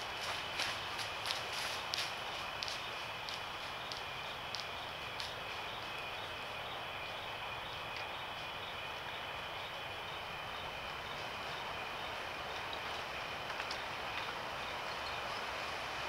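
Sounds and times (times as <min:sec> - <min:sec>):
steady outdoor hiss: 0:00.0 - 0:16.0
soft ticks: 0:01.3 - 0:05.4, 0:12.5 - 0:15.2.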